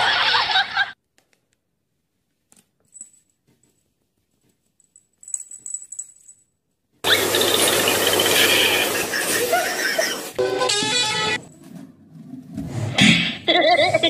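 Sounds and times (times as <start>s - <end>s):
cat collar bell jingling: 2.8s - 3.8s, 4.6s - 6.6s.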